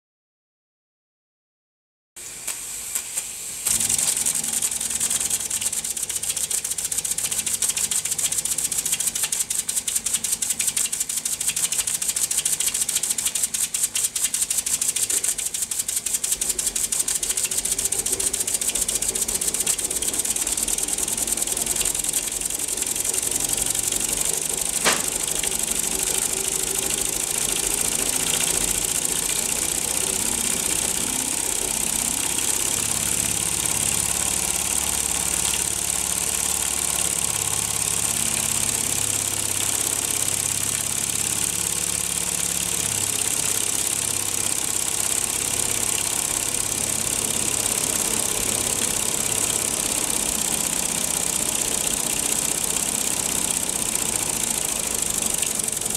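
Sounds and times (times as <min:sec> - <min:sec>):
steady steam hiss: 0:02.2 - 0:40.2
sharp click: 0:02.4 - 0:26.2
model steam engine clattering: 0:03.7 - 0:55.9.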